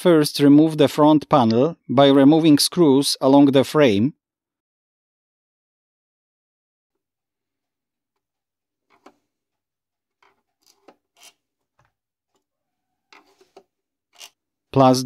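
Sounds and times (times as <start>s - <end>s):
screwdriver clicking and scraping: 8.9s - 9.2s, 10.2s - 11.5s, 13.1s - 14.4s.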